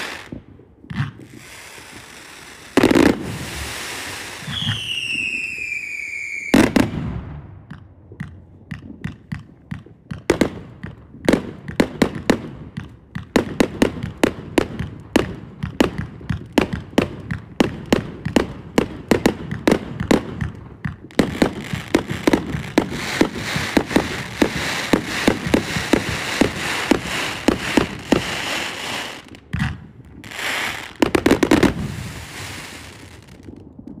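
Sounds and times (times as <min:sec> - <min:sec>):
crackling hiss of bursting stars: 0:00.0 - 0:06.5, 0:20.9 - 0:34.0
firework cake firing shots: 0:08.7 - 0:33.5.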